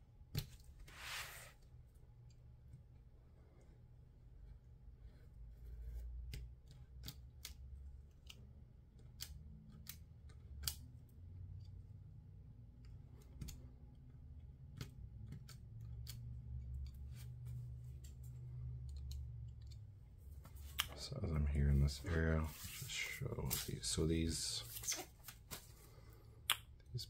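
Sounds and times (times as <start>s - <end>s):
hands rubbing on paper: 0.9s - 1.5s, 21.7s - 23.7s.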